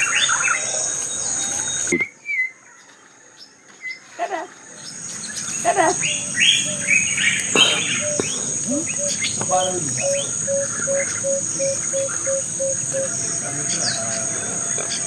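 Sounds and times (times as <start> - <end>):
birds chirping: 0.0 - 15.0
insects droning: 0.0 - 15.0
bird repeating low note: 5.4 - 15.0.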